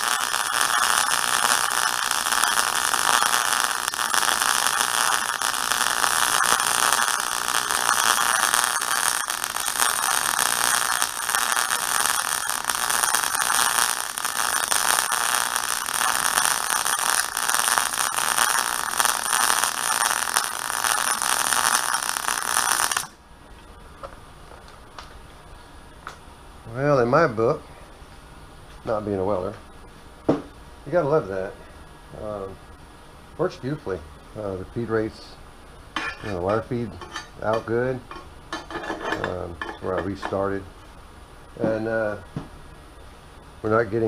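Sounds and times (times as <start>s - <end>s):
welding arc crackling: 0.0s - 23.2s.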